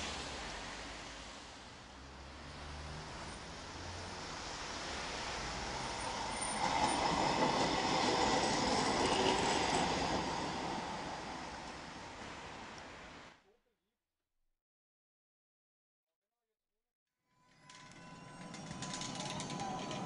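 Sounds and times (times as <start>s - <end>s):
tram passing on rails: 0.0s - 13.3s, 17.5s - 20.0s.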